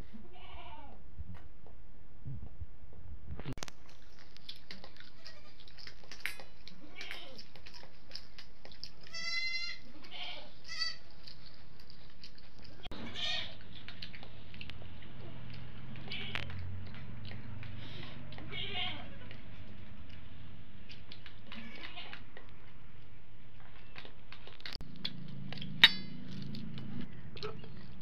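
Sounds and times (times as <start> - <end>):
farm animal bleating: 0.1 - 1.0, 5.1 - 5.6, 9.1 - 11.0, 12.9 - 13.6, 16.0 - 16.5, 18.5 - 19.4, 21.5 - 22.2.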